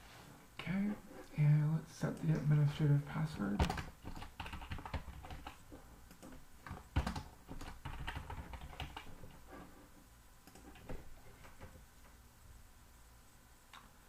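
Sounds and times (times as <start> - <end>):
keyboard typing: 3.6 - 9.4, 10.4 - 11.8.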